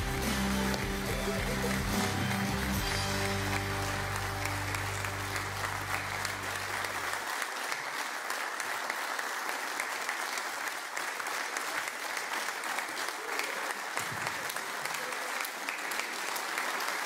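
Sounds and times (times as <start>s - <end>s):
soft music: 0.0s - 7.1s
audience clapping: 0.0s - 17.0s.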